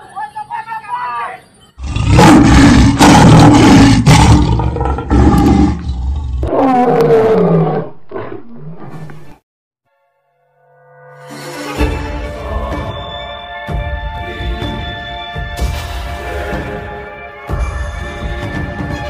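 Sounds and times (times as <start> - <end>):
lion roar: 1.8 - 9.4.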